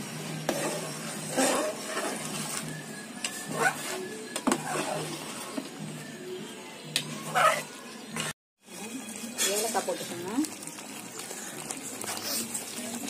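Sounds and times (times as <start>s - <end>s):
ladle scraping a metal pan: 0.3s - 5.8s, 7.2s - 8.3s, 9.3s - 10.1s.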